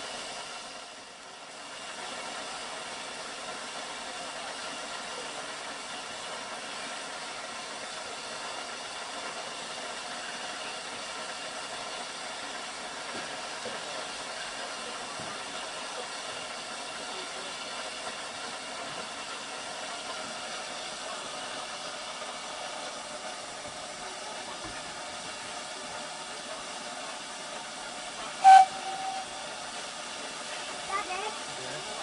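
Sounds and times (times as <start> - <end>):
steam hissing: 0.0 - 32.0
steam whistle toot: 28.4 - 29.7.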